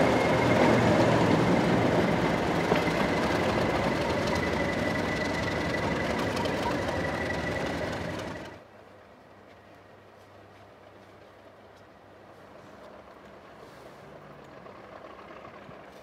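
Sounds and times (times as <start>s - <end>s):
high turbocharger whistle: 0.0s - 8.6s
diesel locomotive engine running: 0.0s - 8.7s, 12.8s - 16.0s.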